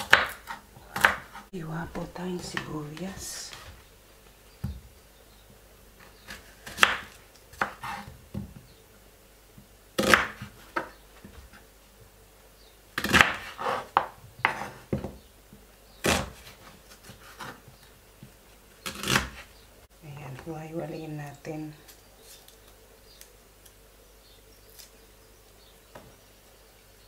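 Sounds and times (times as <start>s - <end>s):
knife cutting onion on board: 0.0s - 1.5s, 6.3s - 8.4s, 10.0s - 10.9s, 13.0s - 15.1s, 16.0s - 17.6s, 18.8s - 19.5s.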